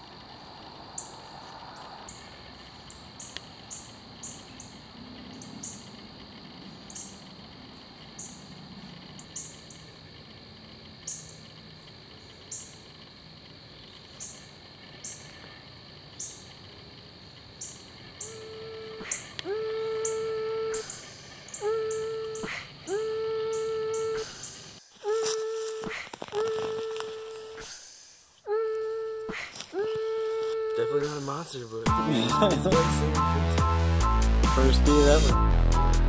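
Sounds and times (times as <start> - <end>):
steady hum-like tone: 0.0 - 25.7
high-pitched chirps: 18.2 - 25.6.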